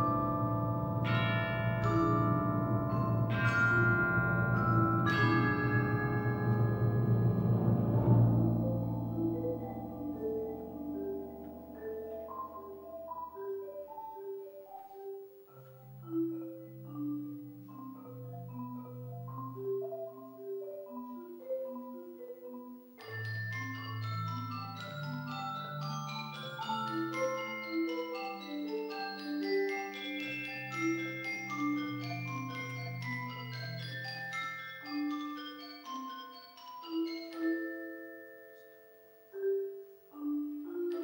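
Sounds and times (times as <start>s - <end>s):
low drum stroke ringing: 0.0s - 13.4s
tuned mallet percussion notes: 0.0s - 41.0s.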